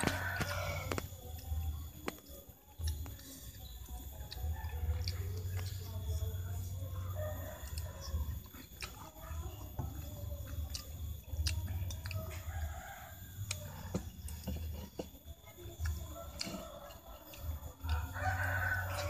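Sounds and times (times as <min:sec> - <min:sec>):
rooster crowing: 0:00.0 - 0:01.0, 0:07.0 - 0:08.4, 0:12.2 - 0:13.9, 0:16.2 - 0:19.0
chickens clucking: 0:00.0 - 0:19.0
chopsticks clicking on a plate: 0:04.2 - 0:05.9, 0:07.1 - 0:19.0.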